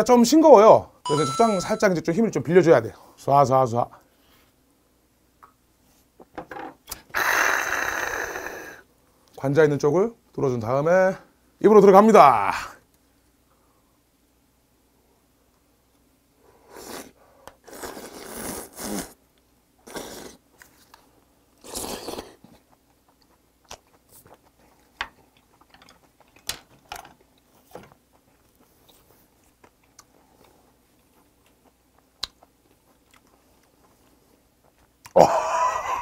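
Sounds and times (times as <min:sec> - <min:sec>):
wet chewing mouth smacks: 0:21.8 - 0:26.4, 0:28.2 - 0:34.0.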